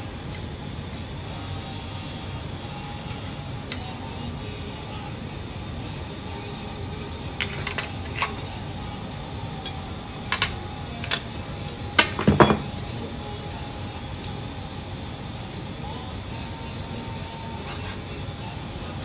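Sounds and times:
gas torch hissing: 0:00.0 - 0:19.0
metal bar clinking on metal plates: 0:09.6 - 0:11.3, 0:12.0 - 0:12.7.

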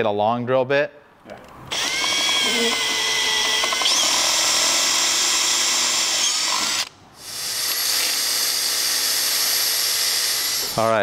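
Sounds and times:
cordless drill whining: 0:01.7 - 0:11.0.

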